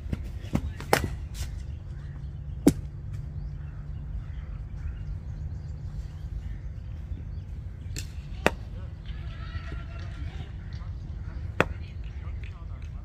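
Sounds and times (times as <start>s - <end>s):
steady low rumble: 0.0s - 13.0s
faint bird chirps: 1.5s - 8.2s.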